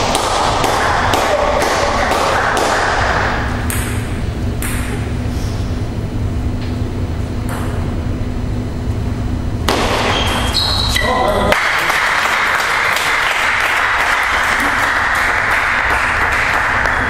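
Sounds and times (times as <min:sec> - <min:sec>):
table tennis ball bouncing: 0:00.0 - 0:05.2, 0:07.4 - 0:07.9
low hall hum: 0:00.0 - 0:17.0.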